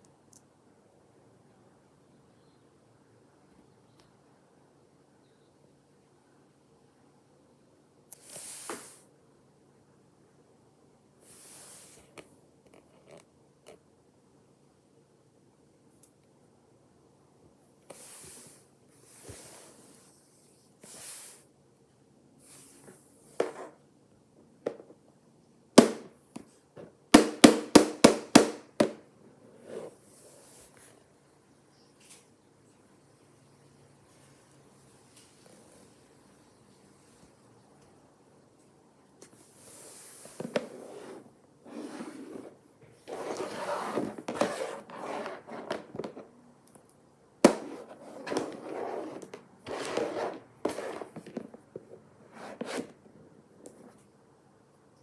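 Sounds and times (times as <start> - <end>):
plastic toys knocking and scraping: 42.4 - 46.3, 47.4 - 53.0.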